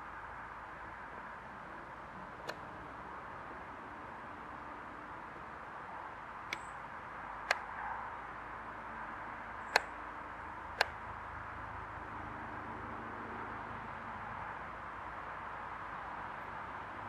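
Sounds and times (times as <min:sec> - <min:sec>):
outdoor background noise: 0:00.0 - 0:17.0
sharp clicks: 0:02.4 - 0:02.7, 0:06.5 - 0:06.8, 0:07.4 - 0:07.7, 0:09.7 - 0:10.0, 0:10.8 - 0:11.0.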